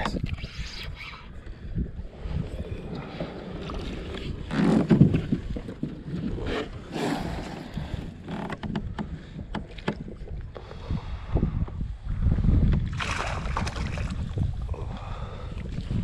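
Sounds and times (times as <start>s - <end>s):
wind rumbling on microphone: 0.0s - 16.0s
knocks and rustling in plastic kayak: 2.4s - 11.9s
sharp clicks and knocks: 8.4s - 10.1s.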